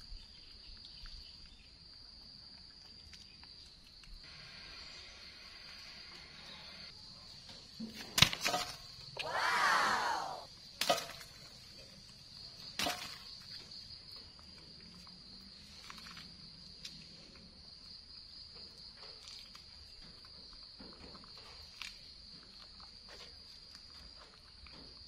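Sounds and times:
high insect drone: 4.2 - 7.2, 8.8 - 10.6
loud pitched cry: 9.2 - 10.5.

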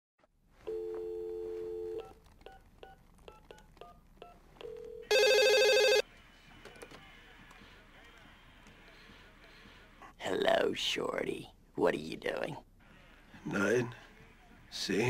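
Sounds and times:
telephone dial tone: 4.6 - 6.0
trilling phone ring: 4.6 - 6.0.

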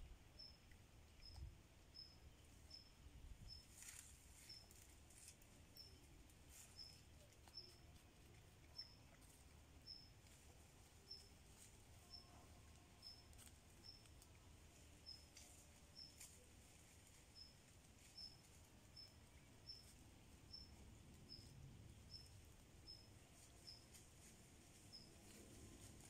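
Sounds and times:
small animal chirping: 0.4 - 2.9, 3.5 - 11.4, 13.0 - 14.3, 15.0 - 16.4, 17.4 - 23.9.

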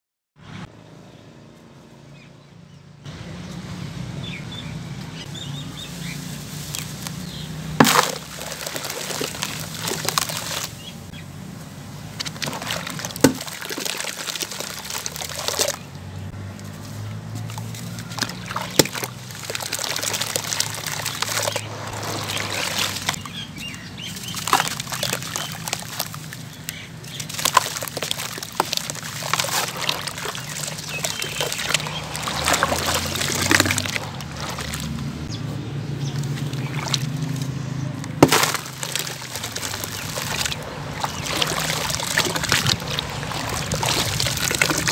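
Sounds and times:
cement lumps crushed in water: 6.0 - 11.1, 12.1 - 35.3, 36.0 - 44.9
lumps dropping into water: 6.7 - 10.9, 12.1 - 16.0, 17.3 - 23.4, 24.0 - 35.1, 36.0 - 44.9.

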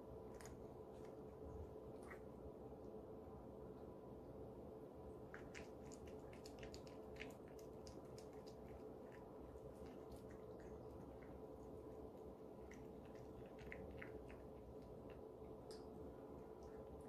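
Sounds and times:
steady low hum: 0.0 - 17.0
cat chewing wet food: 5.2 - 17.0.

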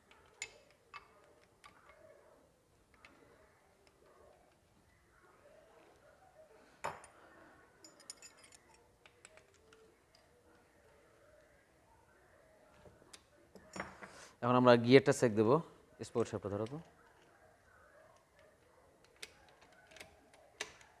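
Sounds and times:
metal engine parts clinking: 7.8 - 8.8
small ringing clinks: 7.8 - 9.8, 13.6 - 14.1.

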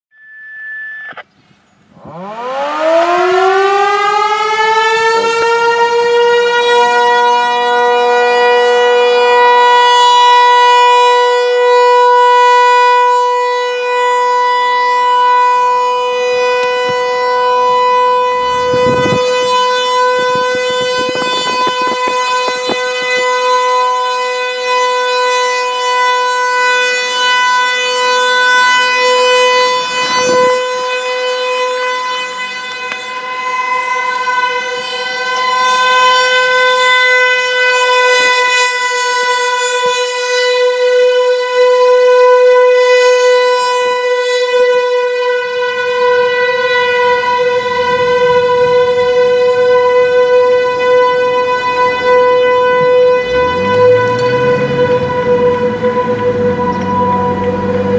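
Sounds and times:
warning siren alert tone: 0.1 - 57.9.

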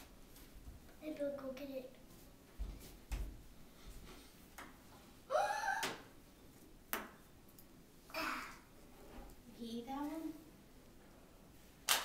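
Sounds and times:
child squealing: 5.3 - 6.0.

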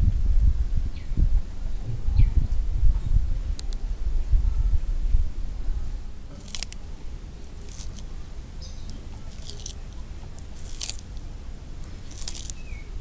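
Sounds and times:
tortoise crunching vegetable: 6.2 - 13.0.

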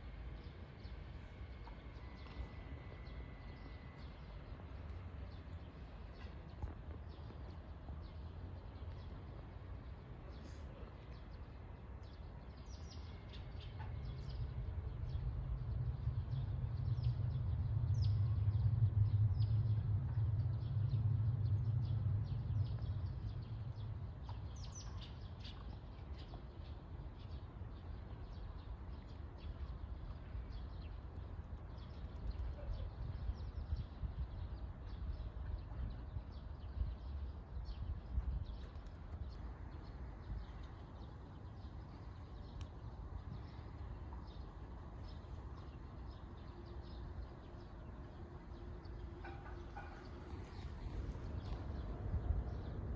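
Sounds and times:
low rumble: 14.3 - 24.4.

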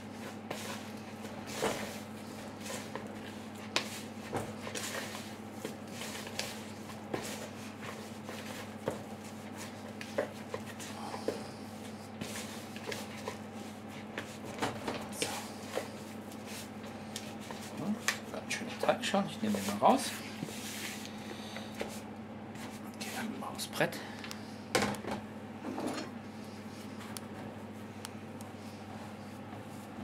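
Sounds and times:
hands kneading dough: 0.0 - 23.5
steady low hum: 0.0 - 30.0.

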